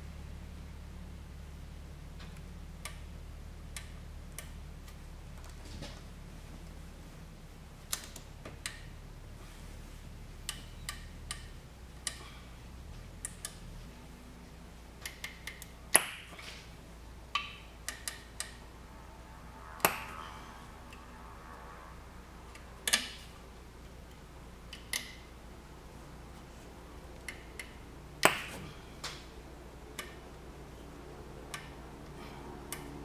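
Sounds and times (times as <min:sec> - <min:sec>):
hands clicking and tapping wiring: 0:07.9 - 0:08.9, 0:10.4 - 0:12.3, 0:13.0 - 0:13.8, 0:15.0 - 0:16.7, 0:17.3 - 0:18.6, 0:24.1 - 0:25.3, 0:27.1 - 0:30.4, 0:31.4 - 0:33.0.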